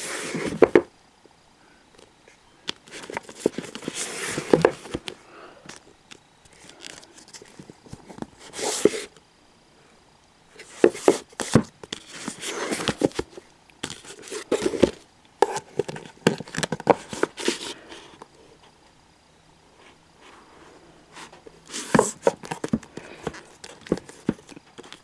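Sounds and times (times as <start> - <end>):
books tapping and rustling: 0.0 - 0.9, 2.7 - 5.8, 10.6 - 17.8, 21.3 - 25.0.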